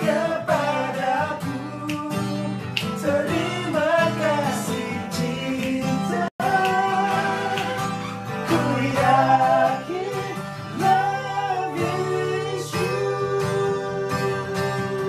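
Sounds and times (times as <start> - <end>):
acoustic guitar chords: 0.0 - 15.0.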